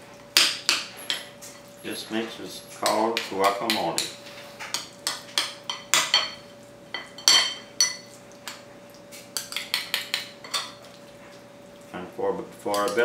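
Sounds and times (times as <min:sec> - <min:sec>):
metal utensils clinking on ceramic bowl: 0:04.7 - 0:08.6, 0:09.4 - 0:10.8, 0:12.7 - 0:13.0.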